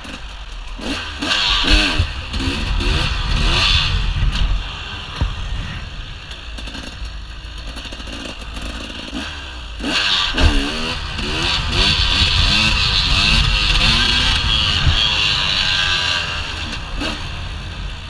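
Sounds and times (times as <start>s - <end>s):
motorcycle engine revving: 0.0s - 18.0s
wind on microphone: 1.6s - 6.3s, 10.4s - 18.0s.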